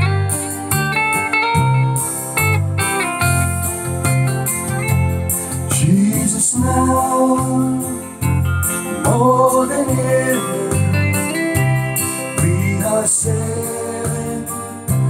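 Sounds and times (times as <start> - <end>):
electric guitar: 0.0 - 15.0
pulsing bass line: 0.0 - 15.0
man singing: 5.7 - 15.0.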